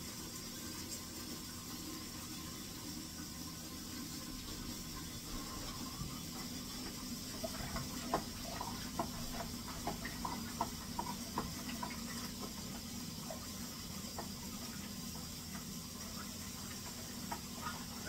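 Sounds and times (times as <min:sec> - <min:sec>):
liquid sloshing: 0:04.4 - 0:13.5.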